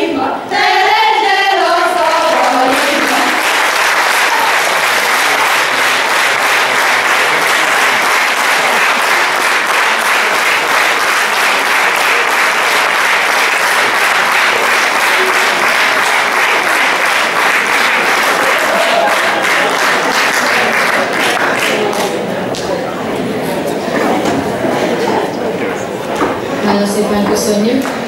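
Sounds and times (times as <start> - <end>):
audience applauding: 2.2 - 22.6.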